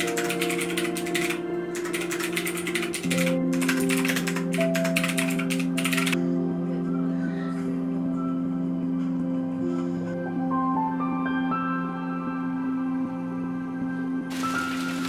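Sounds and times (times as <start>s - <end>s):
fast keyboard typing: 0.0s - 6.2s
soft background music: 0.0s - 15.0s.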